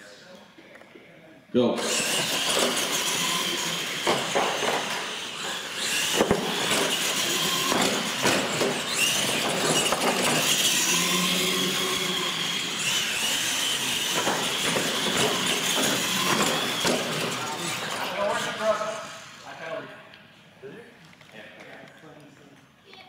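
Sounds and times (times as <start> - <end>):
electric motor whine: 1.8 - 19.4.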